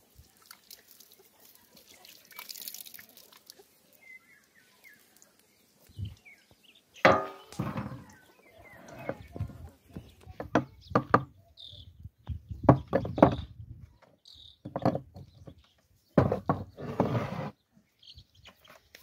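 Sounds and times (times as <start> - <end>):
sharp knocks and thuds: 7.0 - 8.1, 12.2 - 13.5, 16.2 - 16.8
rough noise: 7.0 - 9.7, 16.2 - 17.6.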